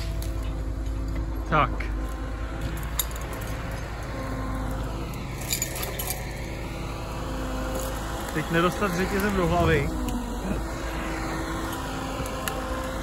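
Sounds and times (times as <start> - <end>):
diesel engine running: 0.0 - 13.0
light metallic clinks: 5.4 - 6.6.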